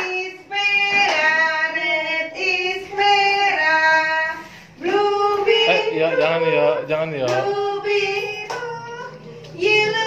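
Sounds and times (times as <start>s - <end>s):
woman singing: 0.0s - 10.0s
children singing: 7.4s - 10.0s.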